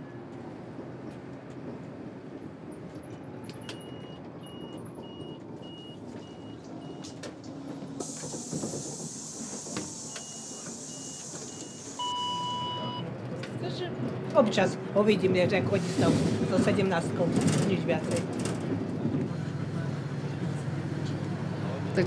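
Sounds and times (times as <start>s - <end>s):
bus engine and road rumble: 0.0s - 22.0s
compressed air hiss: 8.0s - 12.0s
high warning beeper pips: 10.1s - 13.0s.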